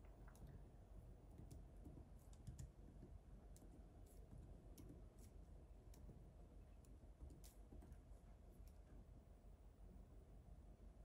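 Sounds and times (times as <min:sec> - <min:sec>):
faint irregular clicks: 0:00.0 - 0:00.7, 0:01.3 - 0:09.0.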